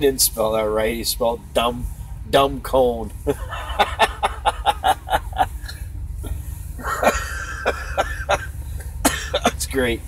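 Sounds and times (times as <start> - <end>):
man laughing: 3.2 - 5.7, 6.8 - 9.6.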